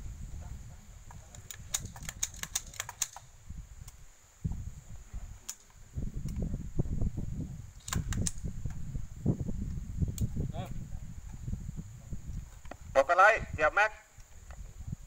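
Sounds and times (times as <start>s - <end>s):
sharp mechanical clicks: 1.4s - 4.0s, 7.8s - 8.4s.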